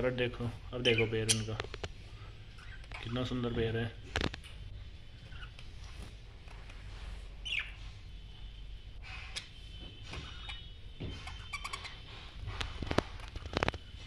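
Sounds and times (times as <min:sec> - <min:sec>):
budgerigars chirping: 0:00.8 - 0:01.6, 0:07.4 - 0:07.8, 0:10.2 - 0:12.1.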